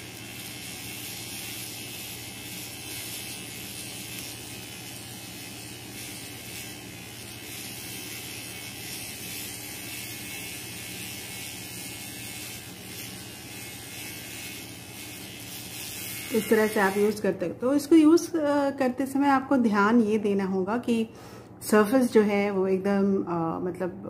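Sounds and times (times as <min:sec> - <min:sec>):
electric trimmer buzzing: 0:00.0 - 0:17.5.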